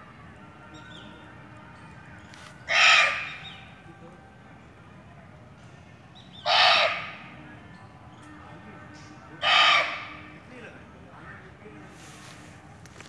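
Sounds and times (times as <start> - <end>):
deer barking: 2.7 - 3.4, 6.4 - 7.2, 9.4 - 10.3.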